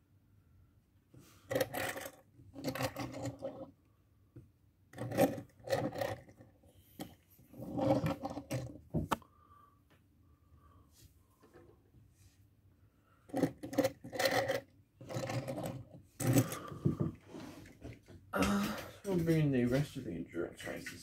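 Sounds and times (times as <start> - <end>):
toy car wheels rolling on wood: 1.5 - 3.7, 5.0 - 8.8, 13.3 - 17.9.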